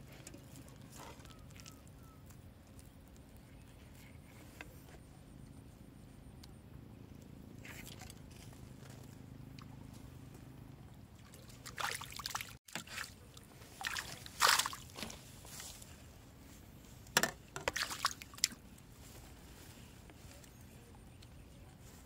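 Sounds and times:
water splashing and sloshing: 7.6s - 19.3s.

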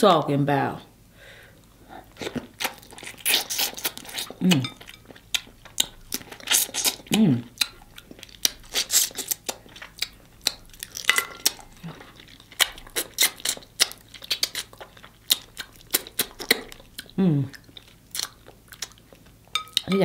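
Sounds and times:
sucking and chewing crab legs: 1.6s - 19.9s
person humming mm: 4.4s - 4.8s, 17.2s - 17.6s.

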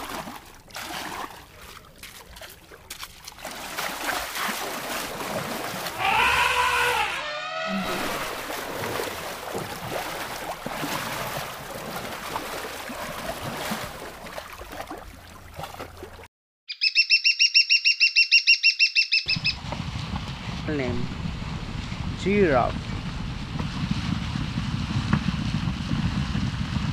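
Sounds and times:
elephants splashing in mud: 0.0s - 7.0s, 7.7s - 16.3s.

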